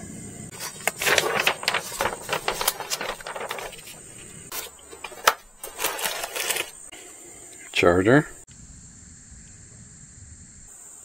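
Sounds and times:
paper rustling: 0.5 - 6.9.

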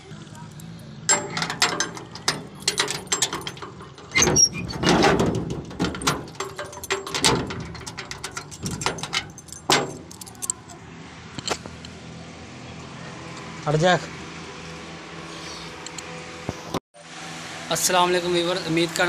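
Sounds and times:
keys jangling against metal door: 1.1 - 10.8
metal bolt latch knocks and scrapes: 1.1 - 10.8
key working in lock: 1.3 - 10.8.

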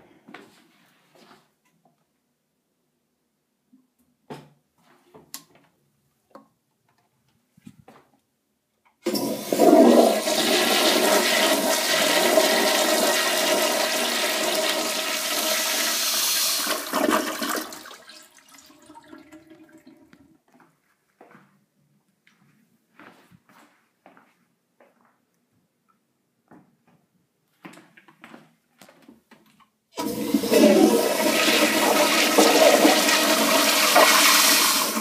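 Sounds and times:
toilet flushing water rush: 9.1 - 20.1, 30.0 - 35.0.

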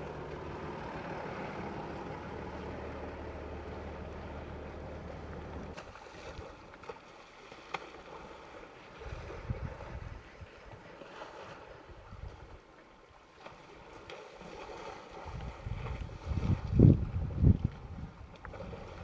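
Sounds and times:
wind buffeting microphone: 9.0 - 10.8, 15.2 - 19.0.

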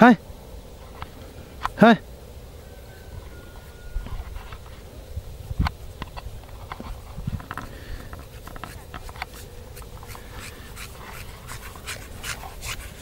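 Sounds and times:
footsteps crunching in snow: 6.6 - 13.0.

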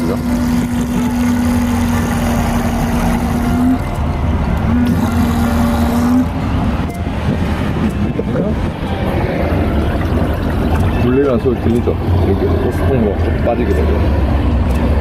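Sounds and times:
electric water pump humming: 0.0 - 15.0.

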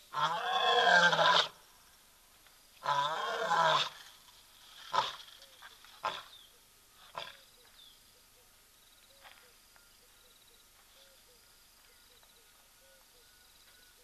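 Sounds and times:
insects chirping: 0.0 - 14.0
birds chirping: 5.2 - 14.0.

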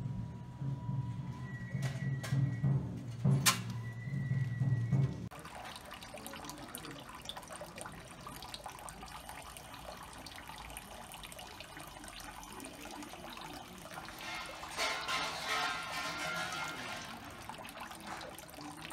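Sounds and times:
water trickling into stone basin: 5.1 - 18.9.

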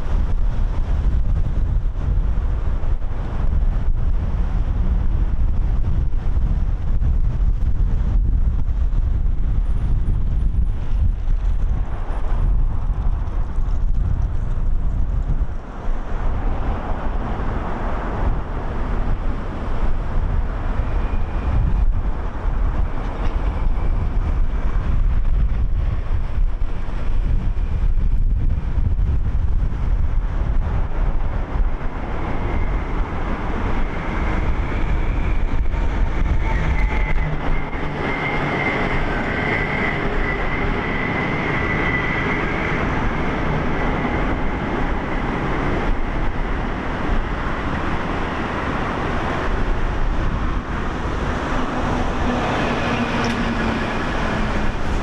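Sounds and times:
steady traffic noise: 0.0 - 55.0
wind rumbling on microphone: 0.0 - 55.0
thin high whine: 32.2 - 46.0.

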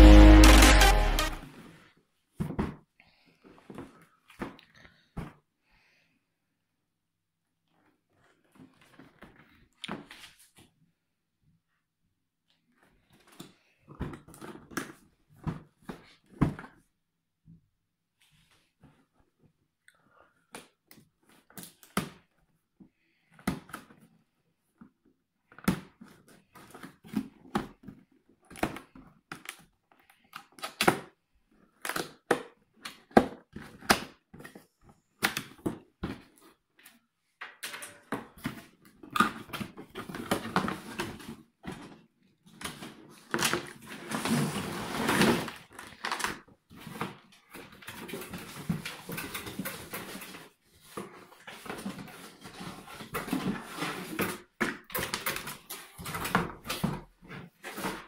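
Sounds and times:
packing tray scraping and rustling: 43.7 - 45.9, 46.8 - 54.5.

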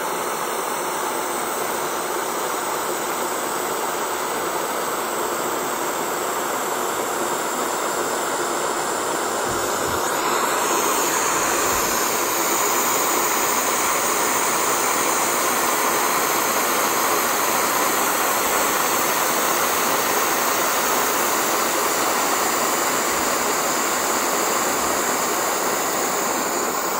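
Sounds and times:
air hissing out of a ball: 8.5 - 26.9.

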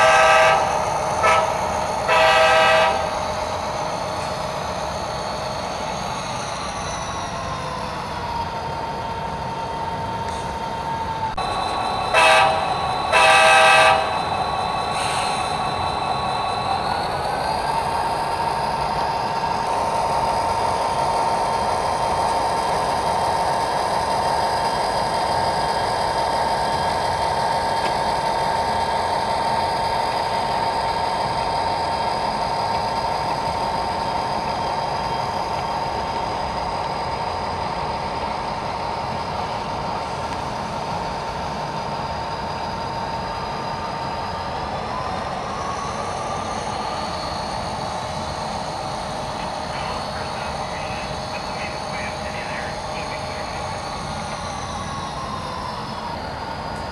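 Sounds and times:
model locomotive engine sound: 0.0 - 56.9
whine over hiss: 11.4 - 56.9.

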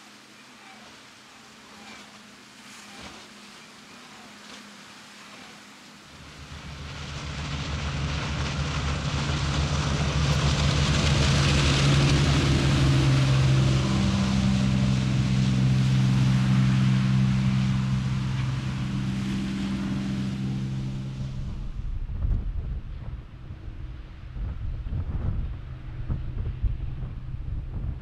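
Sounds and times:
rushing water and spray: 0.0 - 22.3
boat engine droning: 0.0 - 28.0
wind: 0.0 - 28.0.

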